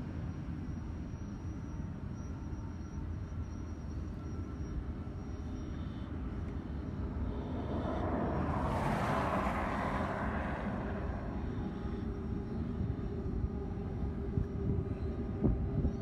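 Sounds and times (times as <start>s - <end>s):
freight train rumbling on rails: 6.8s - 16.0s
train rushing noise: 7.0s - 12.2s.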